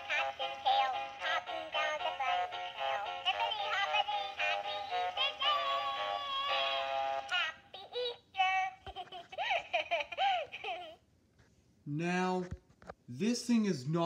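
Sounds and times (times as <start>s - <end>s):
synthetic singing voice: 0.0s - 8.9s.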